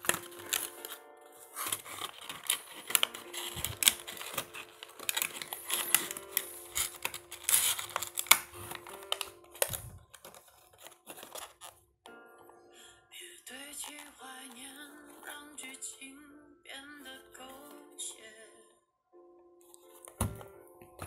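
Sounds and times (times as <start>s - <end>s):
packaging clicks scrapes and rustles: 0.0s - 11.8s, 13.8s - 14.8s.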